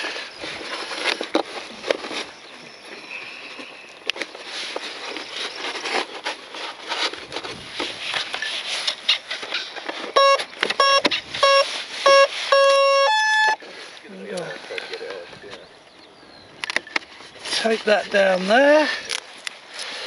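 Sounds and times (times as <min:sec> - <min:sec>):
clicks and rustling: 0:00.0 - 0:02.7
electronic start-up beeps: 0:10.2 - 0:13.6.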